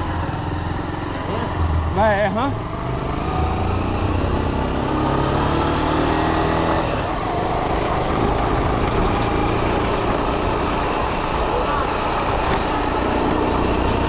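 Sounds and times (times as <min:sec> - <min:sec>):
motorcycle engine running: 0:00.0 - 0:14.0
road and wind noise: 0:00.0 - 0:14.0.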